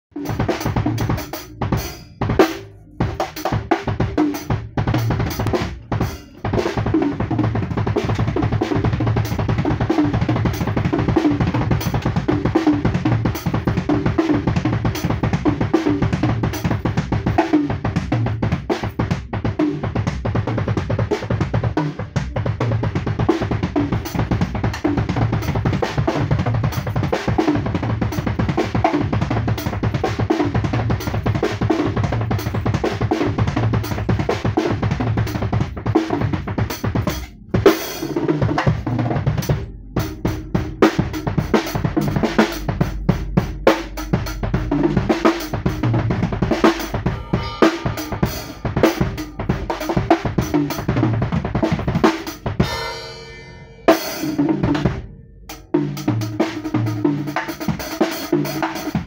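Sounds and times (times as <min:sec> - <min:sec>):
acoustic drum kit playing: 0:00.1 - 0:59.0.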